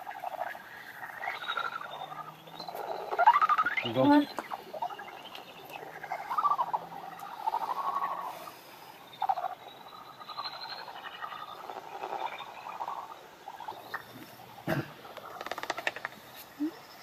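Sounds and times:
animal chirps: 0.0 - 17.0
crackly clicks: 15.1 - 16.2.

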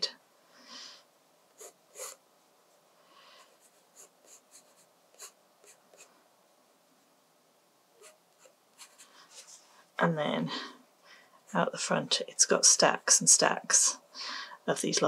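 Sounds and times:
pencil scratching on paper: 1.6 - 2.2, 3.4 - 6.1, 8.0 - 9.6.

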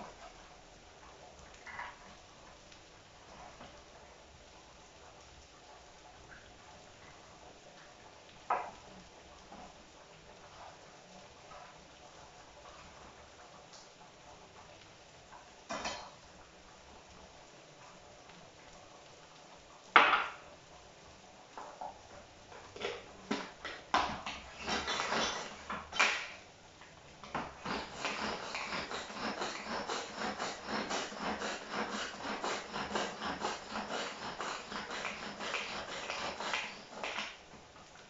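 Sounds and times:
knife chopping on wooden board: 27.4 - 37.3.

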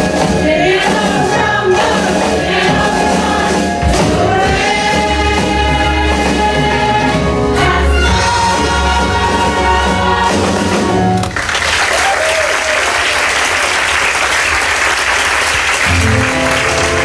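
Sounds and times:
band playing: 0.0 - 12.8, 15.2 - 17.0
audience applauding: 11.1 - 17.0.

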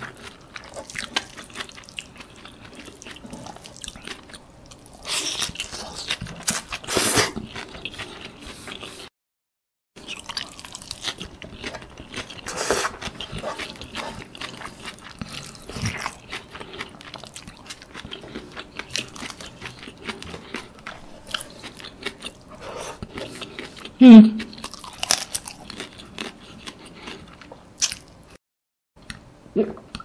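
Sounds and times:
wet crunchy chewing: 10.0 - 28.1.

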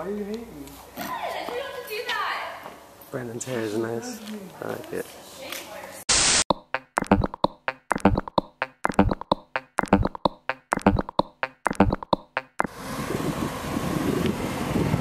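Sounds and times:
dry drum beat: 6.5 - 12.7
wind noise on microphone: 13.0 - 15.0.

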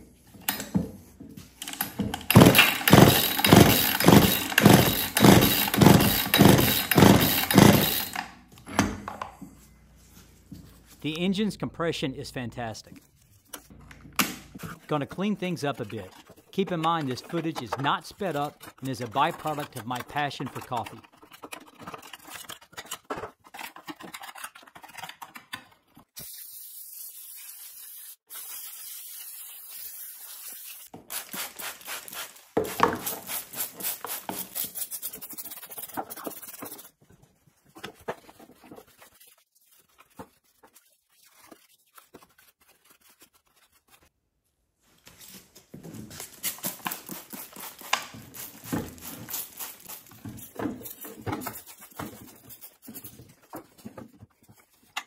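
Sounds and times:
tool scraping dirt off plastic: 14.5 - 25.3, 46.4 - 55.0
spray bottle squirting: 26.2 - 35.5
rapid scrubbing and wiping: 37.7 - 44.1.

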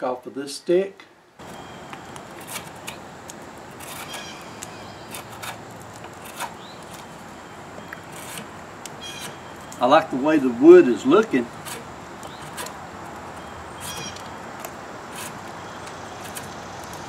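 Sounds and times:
steady background hiss: 0.0 - 17.0
knife scraping bark off stick: 2.3 - 3.0, 3.7 - 7.1, 8.0 - 9.4, 11.0 - 12.8, 13.8 - 17.0.

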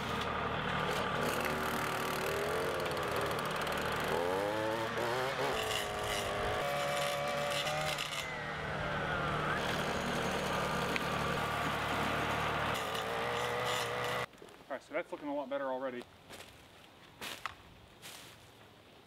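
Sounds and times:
tractor diesel engine under load: 0.0 - 6.7, 7.7 - 14.3
engine whine: 0.0 - 14.3
loader pushing through brush: 0.0 - 14.3.

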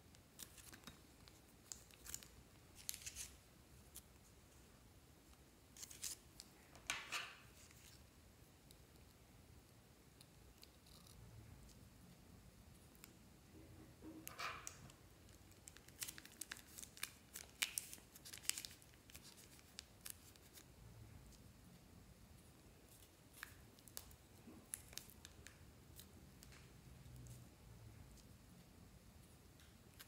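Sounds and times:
plastic piping bag crinkling: 0.3 - 4.1, 14.7 - 20.6, 22.9 - 26.8.

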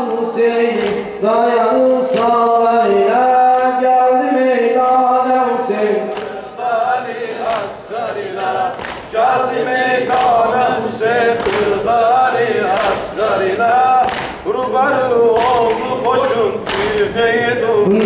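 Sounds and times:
man singing unaccompanied elegy: 0.0 - 7.0, 13.2 - 18.0.

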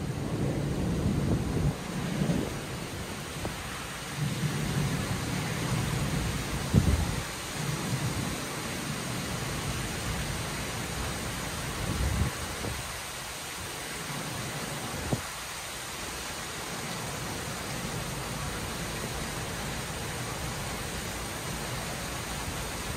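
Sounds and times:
low thunder rumbling: 0.0 - 8.4
heavy rain pouring: 0.0 - 22.9.

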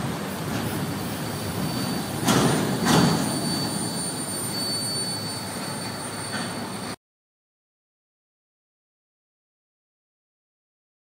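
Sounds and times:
loud wheel clunks: 0.0 - 4.0
train wheels rumbling on rail: 0.0 - 7.0
faint high whine: 0.8 - 7.0.

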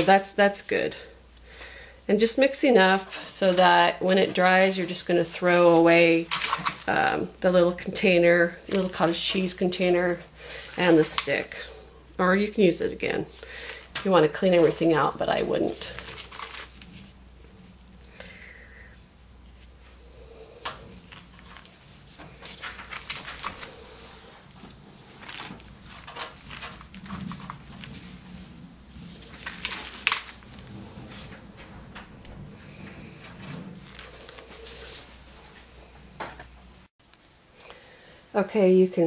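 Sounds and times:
plastic bag crinkling: 3.4 - 11.6, 13.1 - 19.7, 20.8 - 32.5, 33.4 - 35.6.

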